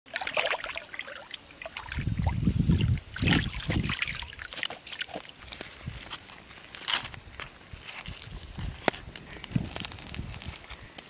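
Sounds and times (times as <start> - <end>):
muddy water sloshing and splashing: 0.1 - 7.0.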